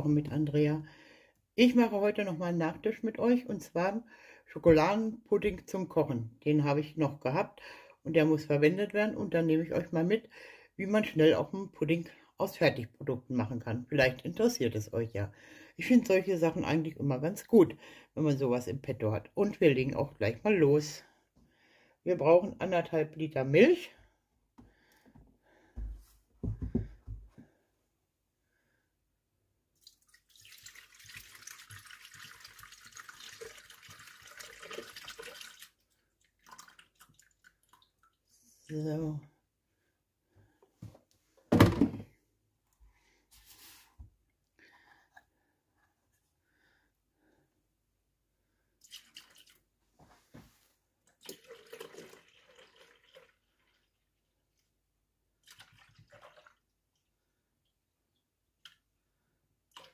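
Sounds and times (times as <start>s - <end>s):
milk pouring into metal bowl: 29.8s - 38.3s, 48.8s - 49.6s, 51.1s - 54.2s, 55.4s - 57.1s, 59.7s - 59.9s.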